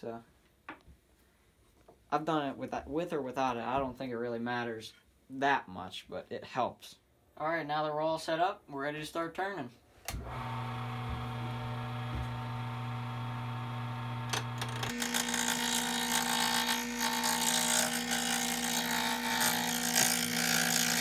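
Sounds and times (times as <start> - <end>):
wood lathe motor hum: 10.2 - 21.0
turning tool scraping wood: 14.2 - 21.0.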